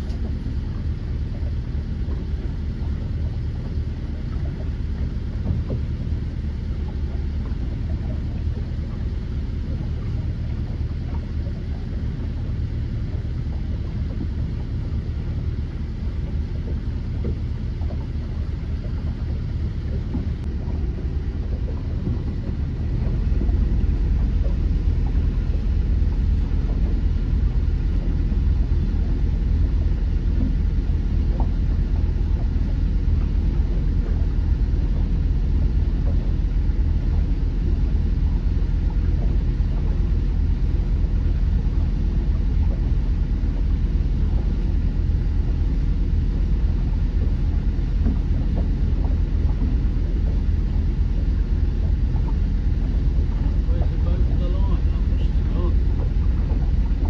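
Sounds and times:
boat engine rumbling: 0:00.0 - 0:57.0.

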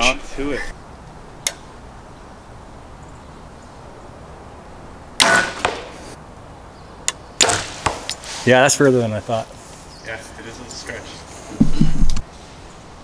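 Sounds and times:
arrow striking foam target: 0:05.2 - 0:06.1, 0:07.4 - 0:08.5
bow shot crack: 0:05.2 - 0:06.2, 0:07.4 - 0:08.5.

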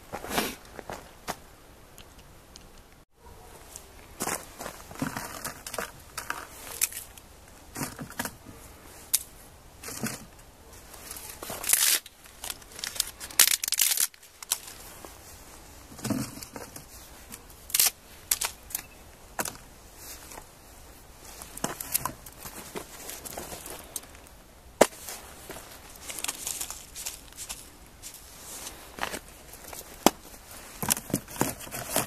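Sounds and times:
dried kelp crackling: 0:10.6 - 0:32.0.

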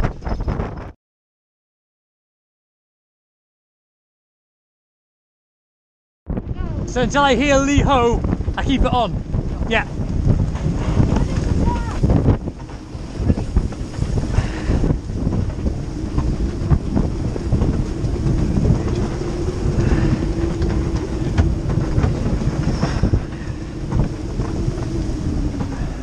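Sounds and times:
wind buffeting microphone: 0:00.0 - 0:01.0, 0:06.3 - 0:26.0
waves breaking against hull: 0:06.3 - 0:26.0.

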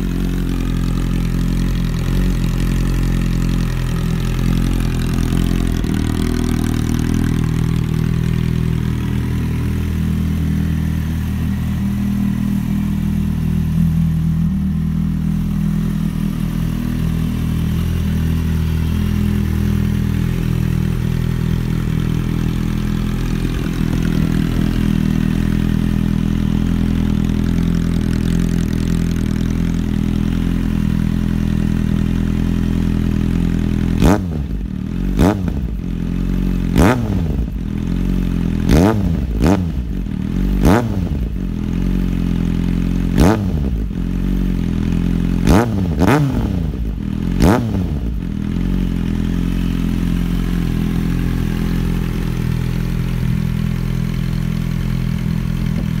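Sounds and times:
motorcycle engine idling and revving: 0:00.0 - 0:56.0.

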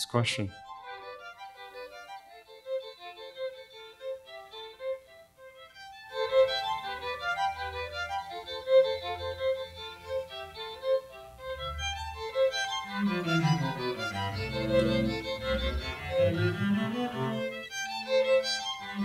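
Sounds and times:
violins playing short notes: 0:05.8 - 0:19.0
lower strings playing: 0:06.0 - 0:19.0.

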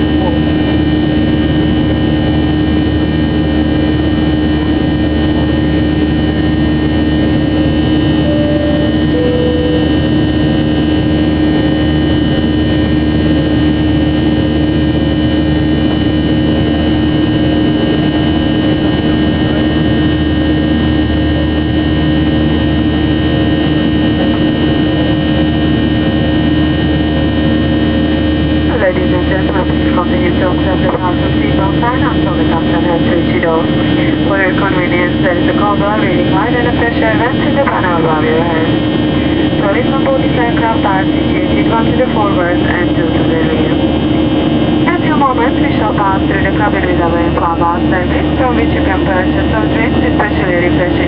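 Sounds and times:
jet engine drone in cabin: 0:00.0 - 0:51.0
two-note cabin chime: 0:08.2 - 0:10.2.

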